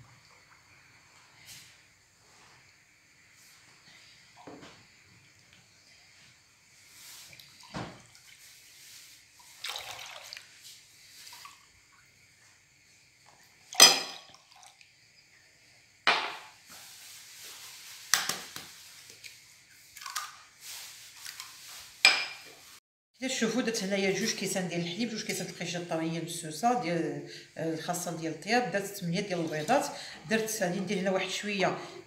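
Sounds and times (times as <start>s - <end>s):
milk and cream dripping into bowl: 14.3s - 14.9s.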